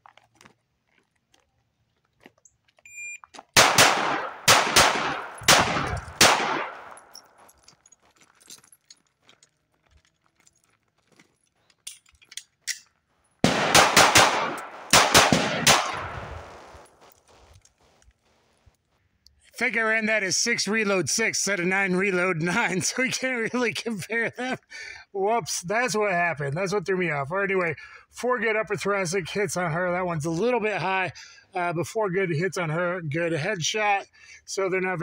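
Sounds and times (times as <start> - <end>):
short beep: 2.9 - 3.2
pistol reload clicks: 3.6 - 7.2, 11.8 - 16.9
pistol shots echoing: 3.6 - 7.2, 13.4 - 17.0.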